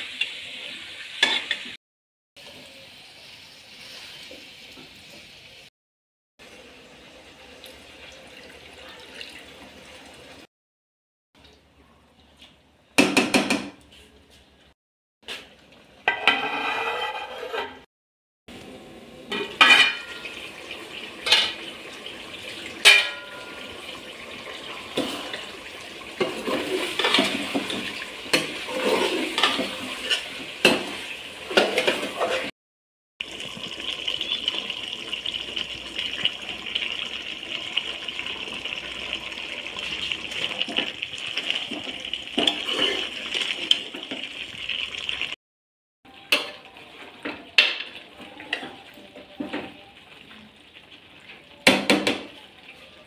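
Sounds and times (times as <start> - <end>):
curry sizzling: 0.0 - 1.8, 2.4 - 5.7, 6.4 - 10.5, 18.5 - 32.5, 33.2 - 45.4, 46.1 - 53.0
ladle scraping a metal pot: 16.1 - 17.9, 26.2 - 30.4, 42.4 - 43.5.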